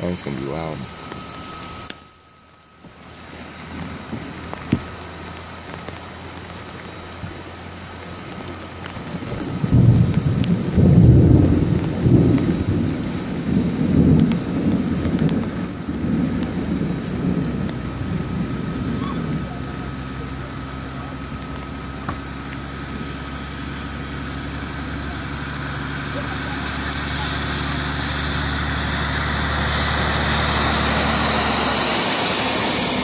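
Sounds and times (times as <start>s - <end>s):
heavy rain: 0.0s - 33.0s
rolling thunder: 9.0s - 20.0s.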